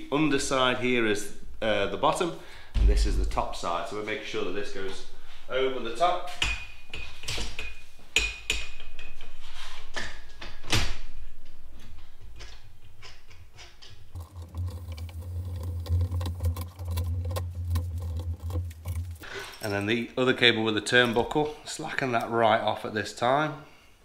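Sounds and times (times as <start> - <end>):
steady low hum: 0.3 - 5.4
metal cable clinking: 13.9 - 20.2.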